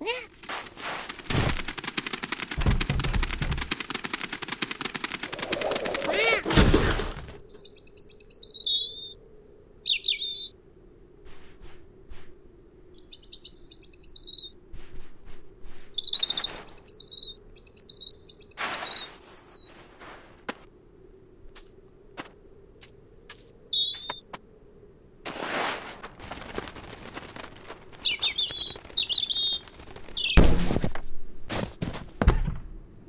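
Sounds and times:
loud thump: 0:30.4 - 0:31.0.

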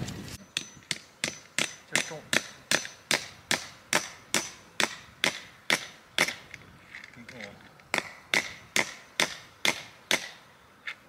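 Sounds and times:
hammer blows on wooden post: 0:00.5 - 0:06.5.

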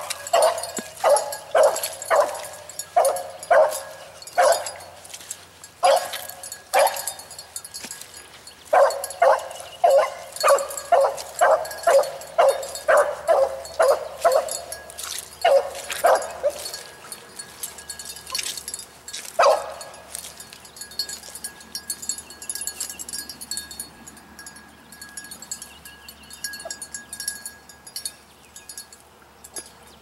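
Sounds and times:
hound baying: 0:00.0 - 0:05.2, 0:05.8 - 0:07.6, 0:08.6 - 0:17.4, 0:19.3 - 0:20.1.

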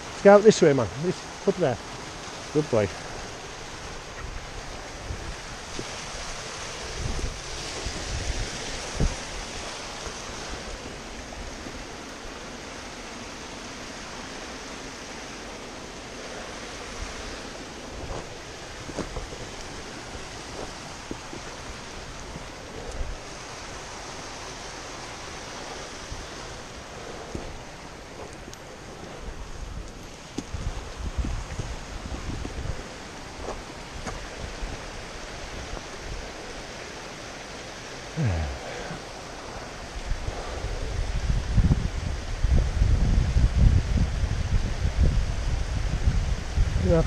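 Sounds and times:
running water: 0:00.0 - 0:40.7
wind on microphone: 0:02.8 - 0:11.9, 0:16.2 - 0:36.7, 0:38.2 - 0:47.0
footsteps on rock: 0:18.0 - 0:19.8, 0:20.4 - 0:22.5, 0:33.4 - 0:34.2.

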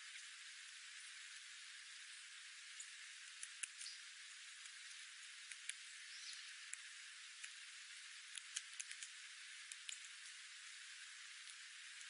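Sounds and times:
light rain hissing: 0:00.0 - 0:12.0
raindrop ticks: 0:08.3 - 0:10.4.

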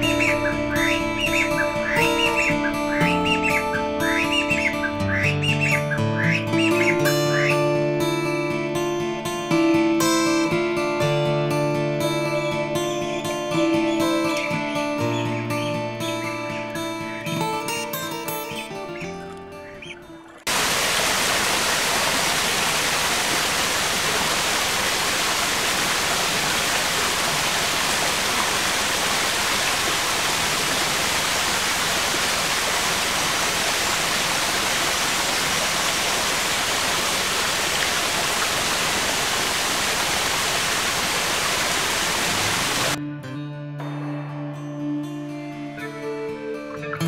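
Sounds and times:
waterfall rushing: 0:00.0 - 0:07.6, 0:20.5 - 0:43.0
acoustic guitar music: 0:00.0 - 0:20.5, 0:43.0 - 0:47.0.

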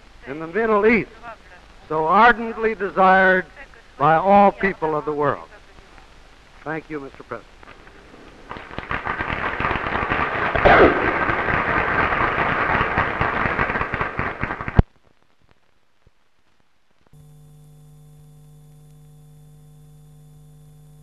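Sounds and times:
faint steady hum: 0:00.0 - 0:09.1, 0:14.8 - 0:21.0
audience applauding: 0:08.4 - 0:14.8.

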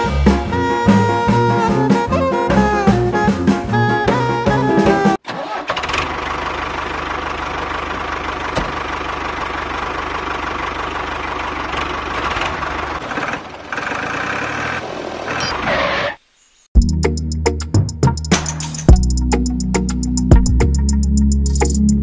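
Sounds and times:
small tractor motor running: 0:05.3 - 0:15.5.

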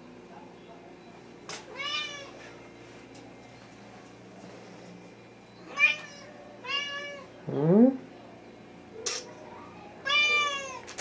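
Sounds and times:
cat meowing: 0:05.7 - 0:07.3, 0:10.0 - 0:10.9.

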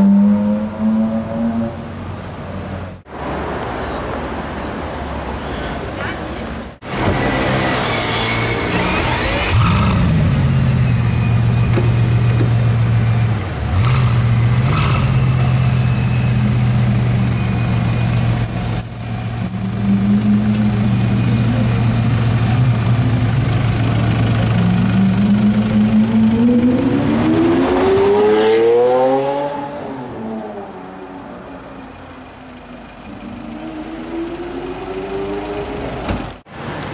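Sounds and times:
car engine accelerating: 0:19.3 - 0:31.2, 0:32.2 - 0:36.4
car engine idling: 0:20.3 - 0:26.3, 0:31.6 - 0:36.4.

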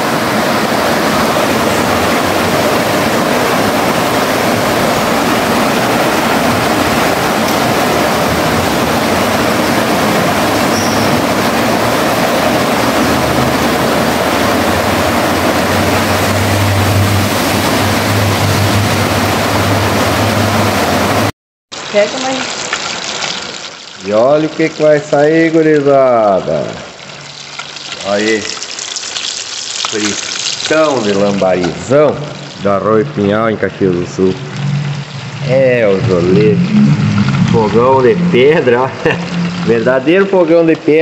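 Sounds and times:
creek water flowing: 0:00.0 - 0:21.3, 0:29.7 - 0:41.0
rain falling: 0:00.0 - 0:41.0
low rumble: 0:00.4 - 0:21.3, 0:32.3 - 0:40.2.

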